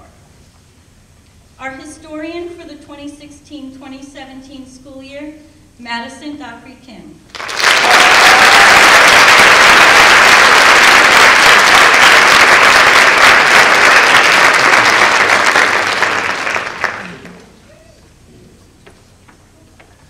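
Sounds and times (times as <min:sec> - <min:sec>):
audience applauding: 0:07.3 - 0:17.6.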